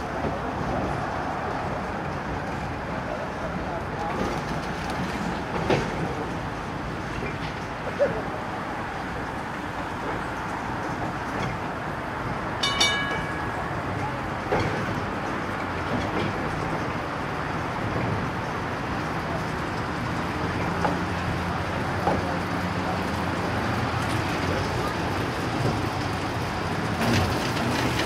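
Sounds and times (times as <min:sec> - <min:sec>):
tram rumbling on track: 0:00.0 - 0:28.0
wheels clanking on track: 0:00.0 - 0:28.0
short metallic ring: 0:12.6 - 0:13.8.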